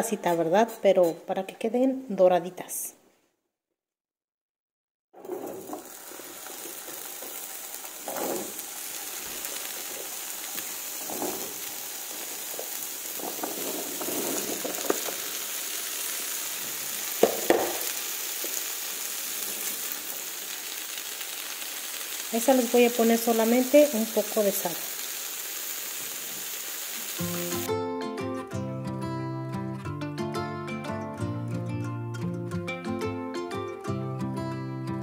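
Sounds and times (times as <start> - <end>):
potatoes sizzling in hot oil: 5.5 - 27.7
knocks and clatters in pan: 12.6 - 15.3, 17.2 - 18.0.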